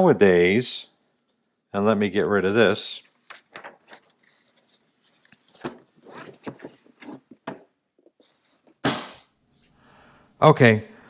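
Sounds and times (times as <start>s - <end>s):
paper pages rustling: 2.2s - 7.5s.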